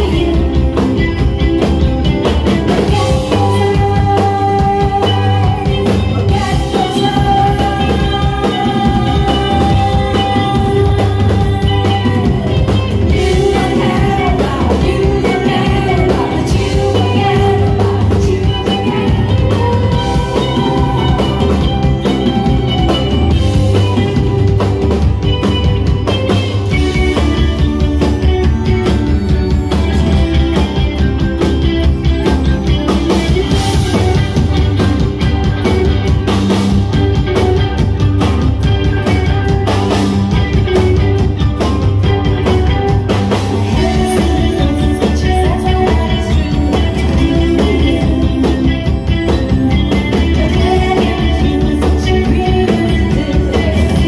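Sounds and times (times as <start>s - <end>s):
woman singing: 0.0s - 28.3s, 42.0s - 54.0s
drum kit: 0.0s - 54.0s
electric guitars and bass: 0.0s - 54.0s.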